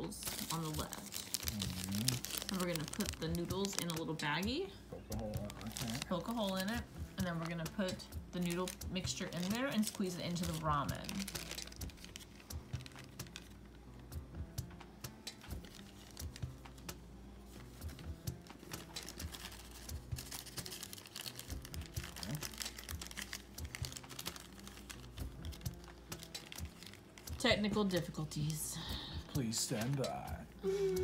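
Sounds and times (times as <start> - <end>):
plastic trays and packets handled: 0.1 - 4.2, 5.4 - 13.6, 15.5 - 16.8, 17.5 - 28.6.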